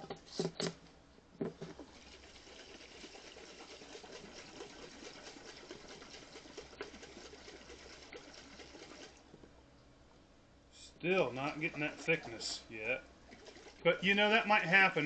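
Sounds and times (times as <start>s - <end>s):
liquid sloshing in a shaken jar: 1.5s - 9.3s, 11.2s - 12.7s, 13.3s - 14.9s.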